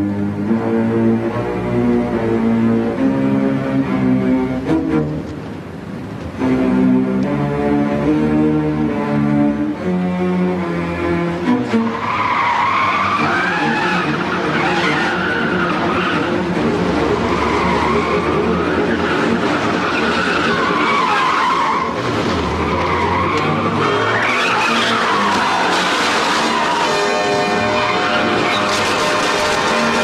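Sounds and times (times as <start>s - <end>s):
car tyres squealing: 10.6s - 30.0s.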